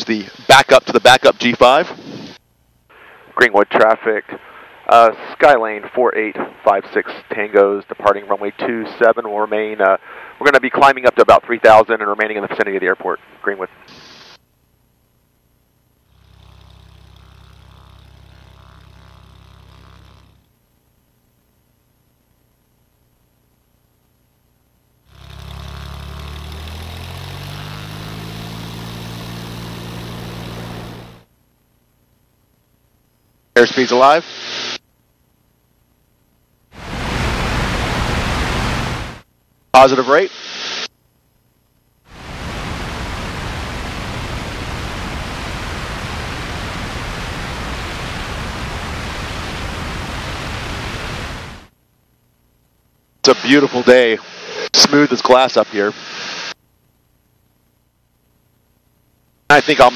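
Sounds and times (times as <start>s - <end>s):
airplane engine and propeller: 25.1s - 31.2s, 36.8s - 39.2s, 42.2s - 51.7s
wind rushing: 36.8s - 39.2s.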